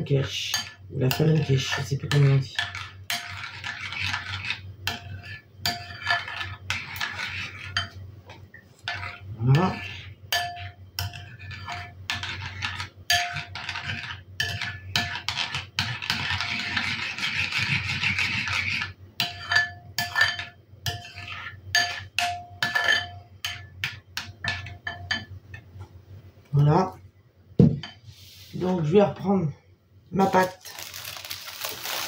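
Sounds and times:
spoon scraping bowl: 0.6s - 8.0s, 8.7s - 23.6s
metal spoon clinking on bowl: 10.3s - 11.3s, 19.2s - 21.2s, 21.8s - 25.4s.

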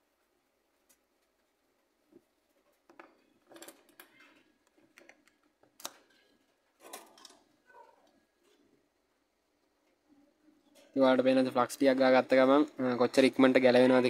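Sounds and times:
small parts scratching and clicking: 2.9s - 8.7s.

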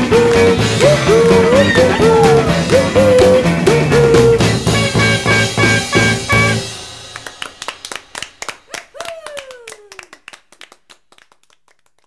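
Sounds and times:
hand clapping: 0.0s - 4.6s, 7.1s - 12.0s
long falling vocal call: 0.0s - 5.2s, 8.7s - 10.2s.

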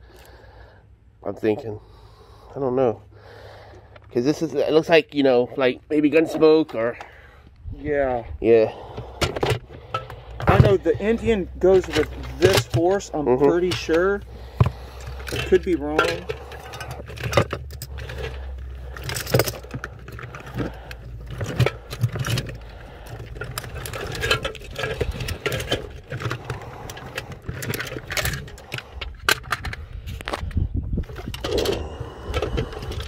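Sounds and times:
plastic toy figures clattering: 8.9s - 30.5s, 31.1s - 33.0s.

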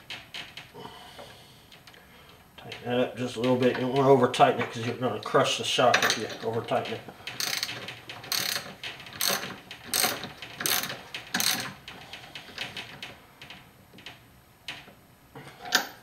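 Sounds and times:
socket ratchet clicking: 7.3s - 11.8s.

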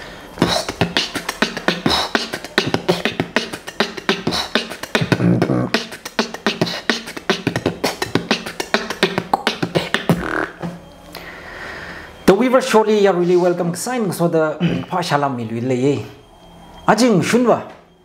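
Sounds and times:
man beatboxing: 0.4s - 10.8s.

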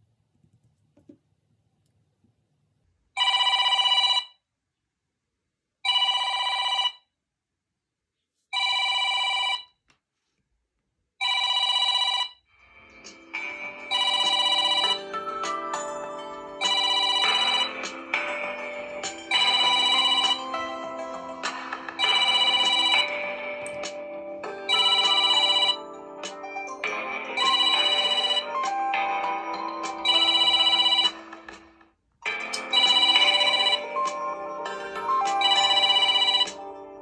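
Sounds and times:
melodic phone ringtone: 3.2s - 4.3s, 5.9s - 7.0s, 8.6s - 9.7s, 11.2s - 31.6s, 32.2s - 37.0s
telephone-style ring tone: 3.2s - 4.4s, 5.9s - 7.1s, 8.6s - 9.8s, 11.2s - 31.5s, 32.3s - 37.0s.

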